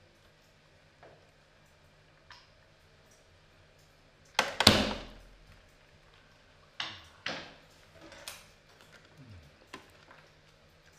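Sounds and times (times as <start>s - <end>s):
sharp knocks and slaps: 4.4s - 5.3s.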